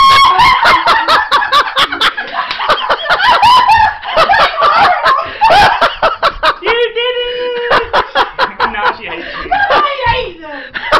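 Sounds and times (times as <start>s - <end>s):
woman shrieking: 0.0s - 0.6s.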